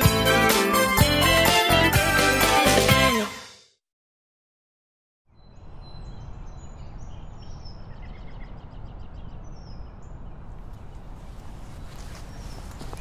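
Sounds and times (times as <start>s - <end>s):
birds chirping: 5.3s - 13.0s.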